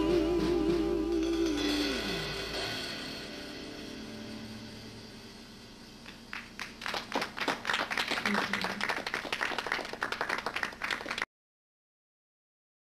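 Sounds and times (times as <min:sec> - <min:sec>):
audience applause: 0:06.3 - 0:11.3.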